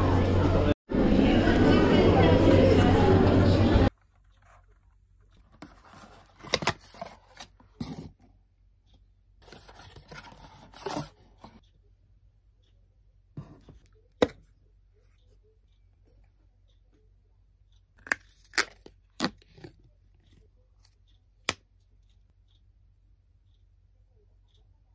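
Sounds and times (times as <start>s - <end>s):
paperboard boxes rustling: 9.4s - 11.6s.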